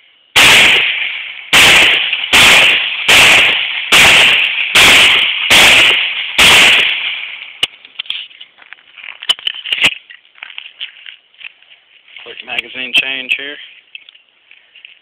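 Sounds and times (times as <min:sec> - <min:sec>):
pistol shots echoing: 0:00.4 - 0:07.5.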